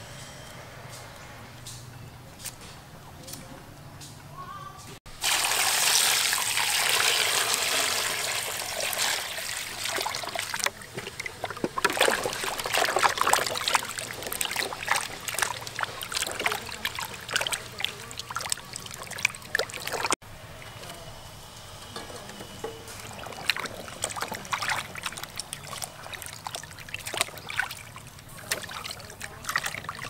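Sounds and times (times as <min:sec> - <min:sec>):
water pouring into a plastic basin: 0:05.1 - 0:20.2, 0:22.8 - 0:30.0
hands rubbing roots in water: 0:09.6 - 0:20.2, 0:22.6 - 0:30.0.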